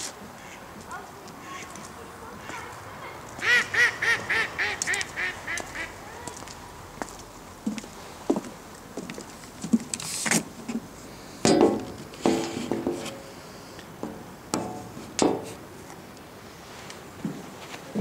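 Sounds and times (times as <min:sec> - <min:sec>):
birds harsh calls: 0:03.4 - 0:06.4.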